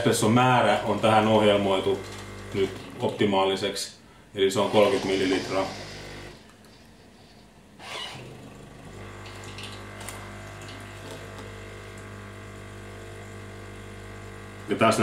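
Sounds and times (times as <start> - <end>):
coffee machine pump humming: 0.0 - 3.5, 4.4 - 6.8, 7.8 - 15.0
coffee machine hiss: 4.6 - 6.4.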